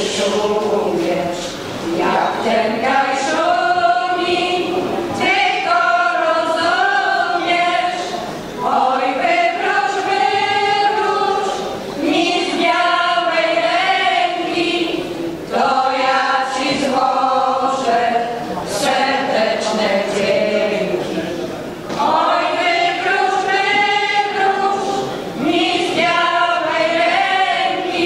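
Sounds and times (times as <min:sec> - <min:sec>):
women's choir singing: 0:00.0 - 0:28.0.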